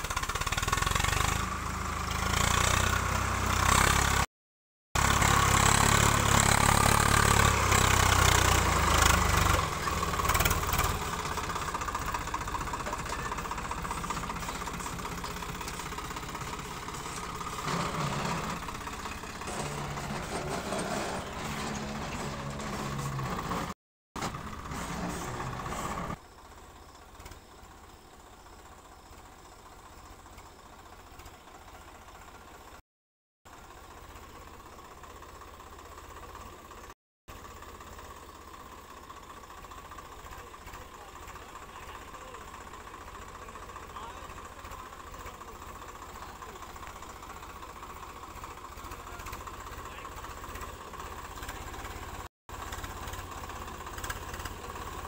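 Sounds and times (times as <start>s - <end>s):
tractor diesel engine running: 0.0s - 4.3s, 5.0s - 32.8s, 33.5s - 55.0s.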